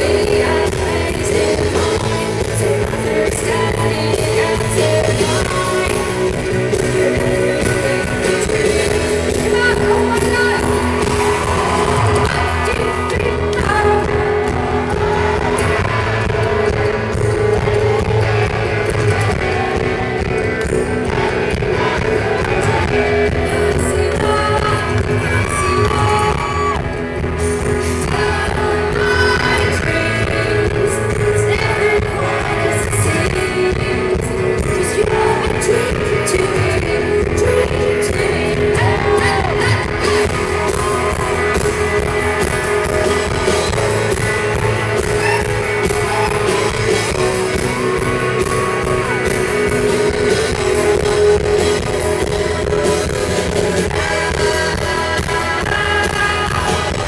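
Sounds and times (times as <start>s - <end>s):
woman singing into microphone: 0.0s - 26.8s, 27.6s - 42.6s
guitars: 0.0s - 57.0s
steady bass: 0.0s - 57.0s.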